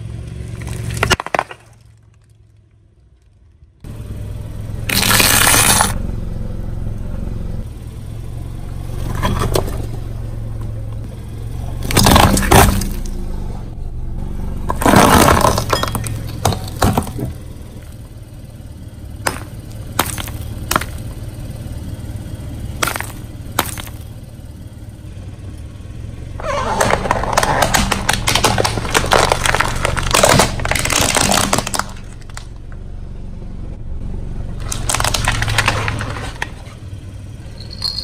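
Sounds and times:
car tyre crushing ice blocks: 0:00.0 - 0:03.6, 0:04.8 - 0:06.0, 0:11.5 - 0:13.3, 0:14.6 - 0:18.3, 0:19.1 - 0:24.2, 0:26.4 - 0:32.9, 0:34.5 - 0:38.0
car engine idling: 0:00.0 - 0:38.0
ice cracking and shattering: 0:00.5 - 0:02.5, 0:04.9 - 0:06.0, 0:11.8 - 0:13.1, 0:14.8 - 0:17.2, 0:19.3 - 0:21.1, 0:22.8 - 0:24.0, 0:26.4 - 0:32.5, 0:34.6 - 0:36.6.

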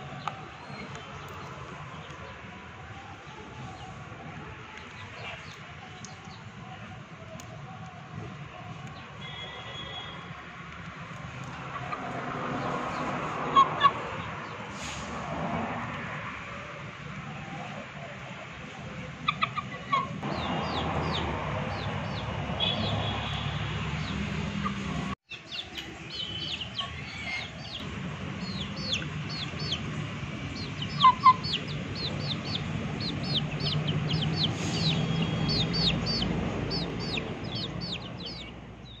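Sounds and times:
chicks peeping: 0:19.2 - 0:23.3, 0:24.0 - 0:39.0
chicken clucking: 0:30.5 - 0:38.5.

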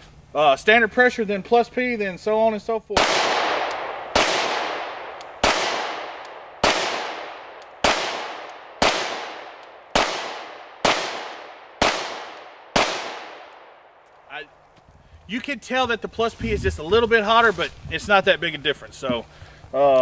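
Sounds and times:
pistol shots with long echo: 0:03.0 - 0:14.0.

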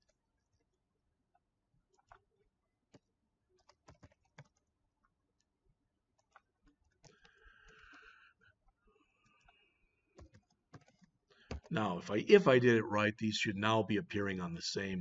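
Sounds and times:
keyboard typing: 0:02.9 - 0:04.8, 0:06.2 - 0:12.3.

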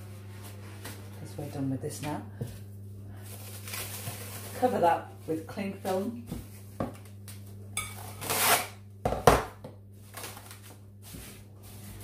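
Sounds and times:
cling film rustling and crinkling: 0:03.2 - 0:04.8, 0:10.0 - 0:12.0.

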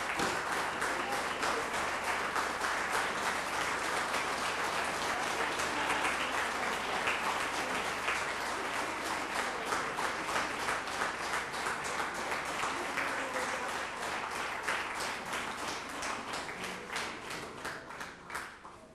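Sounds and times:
audience applauding: 0:00.0 - 0:18.9.

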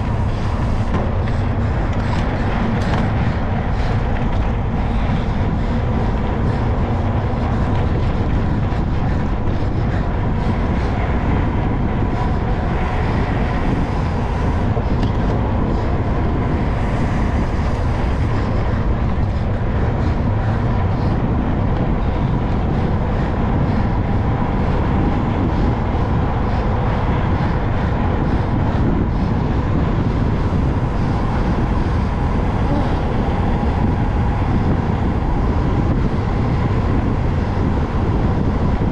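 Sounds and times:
faint tyre hum: 0:00.0 - 0:38.9
wind buffeting microphone: 0:00.0 - 0:38.9.

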